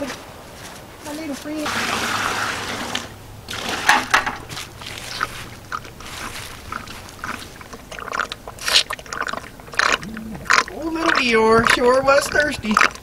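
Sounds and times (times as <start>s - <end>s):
pig slurping water: 1.6s - 13.0s.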